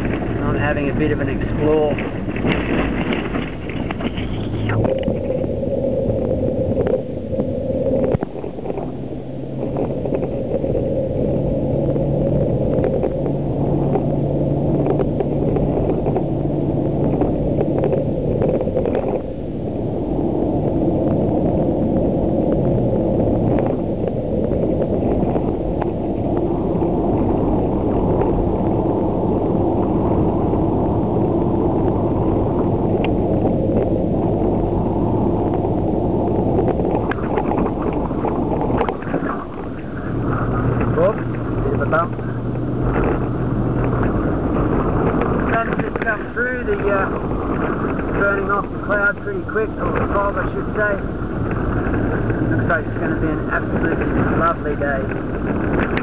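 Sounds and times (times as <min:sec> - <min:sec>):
tyre noise on dirt road: 0:00.0 - 0:56.0
vehicle engine drone: 0:00.0 - 0:56.0
small knocks and rattles: 0:01.8 - 0:05.2.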